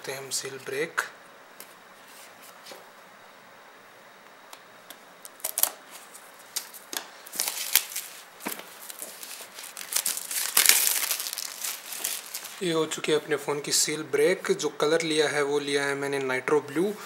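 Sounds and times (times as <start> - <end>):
plastic wrap crinkling: 5.2 - 12.7.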